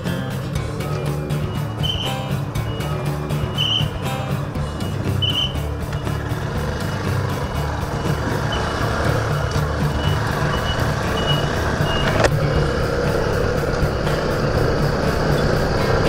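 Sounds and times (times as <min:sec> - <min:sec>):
motorcycle engine running: 0:00.0 - 0:16.0
wind and road noise: 0:00.0 - 0:16.0.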